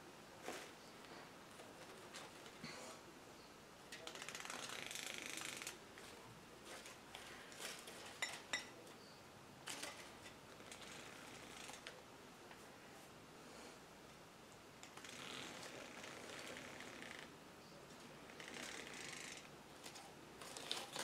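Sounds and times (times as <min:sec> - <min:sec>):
artificial flowers rustling: 0:04.0 - 0:12.0.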